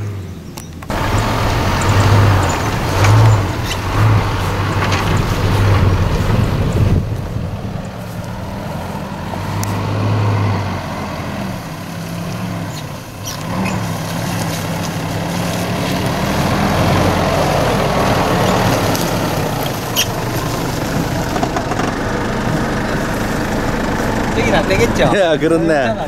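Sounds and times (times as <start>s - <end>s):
suv engine at low revs: 0.0s - 26.0s
tyres and brush rushing: 0.9s - 25.9s.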